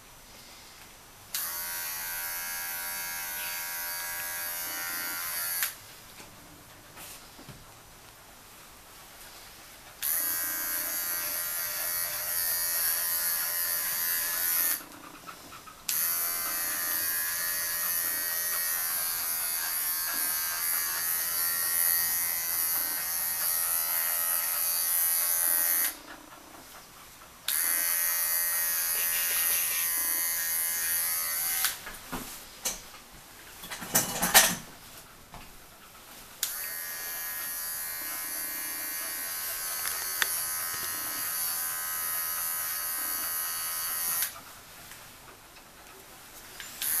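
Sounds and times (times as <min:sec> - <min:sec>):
electric clipper buzzing: 0:01.3 - 0:05.8, 0:10.0 - 0:14.9, 0:15.9 - 0:26.0, 0:27.5 - 0:31.9, 0:36.4 - 0:44.4, 0:46.7 - 0:47.0.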